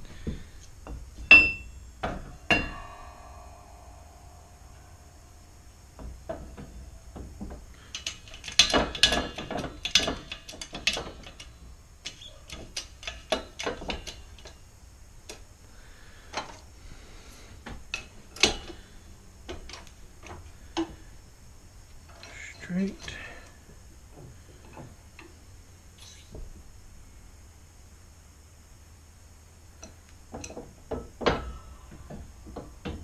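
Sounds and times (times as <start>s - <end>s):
metal parts clicking and rattling: 6.0s - 14.6s, 17.8s - 20.9s.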